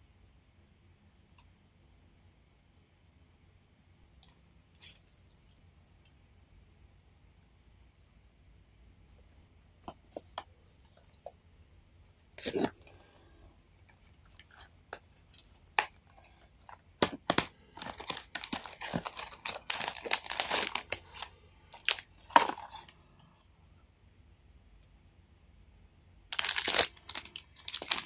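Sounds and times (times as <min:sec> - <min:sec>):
wrapper crinkling and tearing: 0:12.4 - 0:12.8, 0:15.8 - 0:23.0, 0:26.3 - 0:28.0
paper and cardboard rustling: 0:14.4 - 0:23.0, 0:26.4 - 0:28.0.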